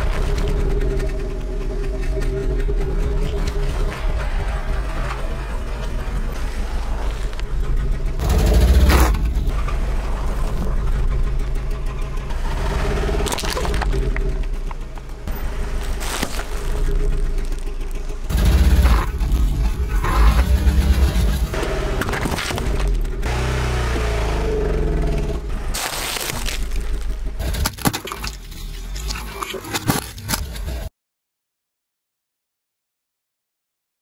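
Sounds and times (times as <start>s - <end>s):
car engine running: 0.0s - 30.9s
tyre crushing food with crunches: 15.8s - 16.9s, 25.7s - 28.4s.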